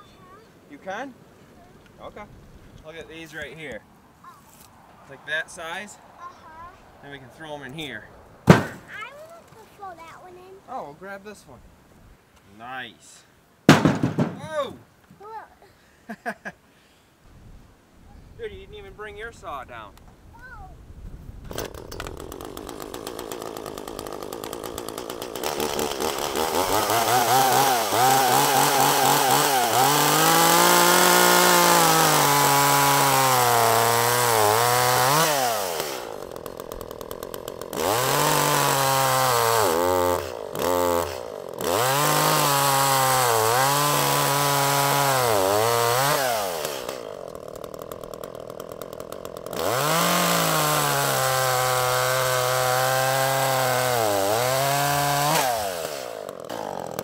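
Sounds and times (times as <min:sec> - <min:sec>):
chainsaw cutting log: 0:08.5 - 0:10.2, 0:13.7 - 0:14.5, 0:21.5 - 0:57.0.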